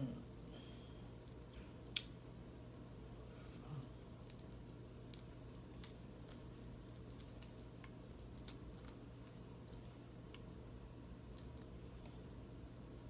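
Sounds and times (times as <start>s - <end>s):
low steady hum: 0.0s - 13.0s
shrimp shell being peeled: 4.2s - 10.5s.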